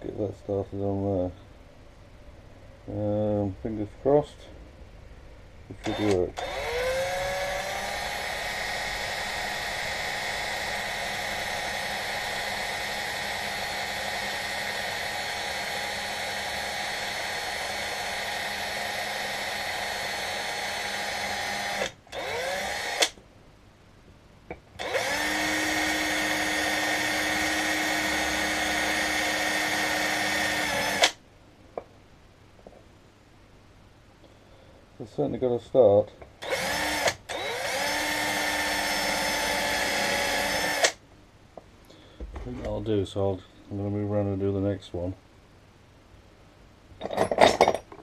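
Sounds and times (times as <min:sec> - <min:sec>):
power drill whining: 0:05.8 - 0:23.2, 0:24.8 - 0:31.2, 0:36.4 - 0:41.0.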